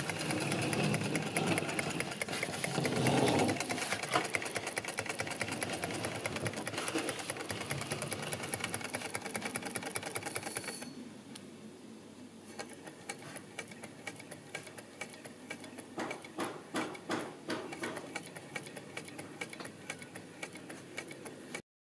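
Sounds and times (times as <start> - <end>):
hot air engine ticking clatter: 0.0 - 6.8.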